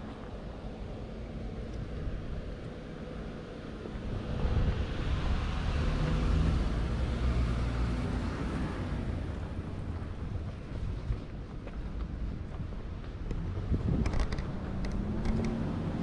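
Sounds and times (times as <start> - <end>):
wind buffeting microphone: 3.6 - 7.4, 8.4 - 16.0
car passing: 3.7 - 10.9.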